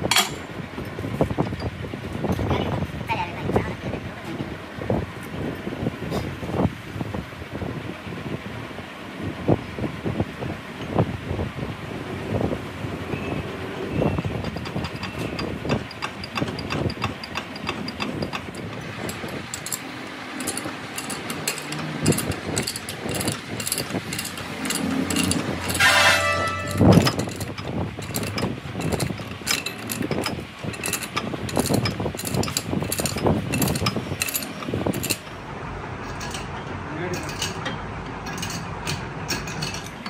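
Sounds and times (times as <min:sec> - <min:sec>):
pipe wrench clicking and clanking: 0:00.0 - 0:00.5, 0:14.2 - 0:35.4, 0:36.0 - 0:40.0
metal ringing: 0:14.1 - 0:35.3.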